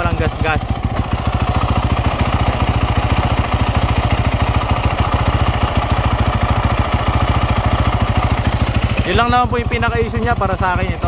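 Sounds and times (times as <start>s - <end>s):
motorcycle engine idling: 0.0s - 11.0s.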